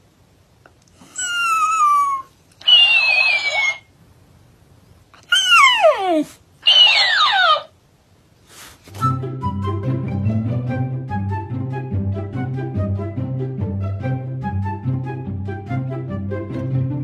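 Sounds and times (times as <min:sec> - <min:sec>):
dog whining cries: 0:01.0 - 0:03.9, 0:05.2 - 0:07.8.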